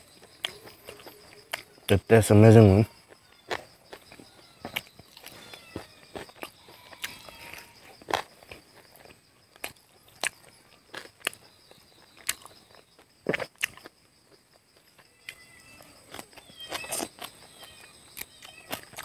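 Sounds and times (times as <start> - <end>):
chewing and lip-smacking: 0.0 - 1.9, 3.0 - 19.0
high insect drone: 0.0 - 19.0.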